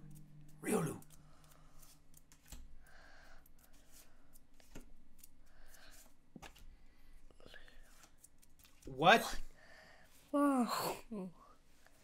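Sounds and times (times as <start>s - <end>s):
light clicks of card edges: 0.1s - 9.0s
cards sliding swishes: 3.5s - 6.7s.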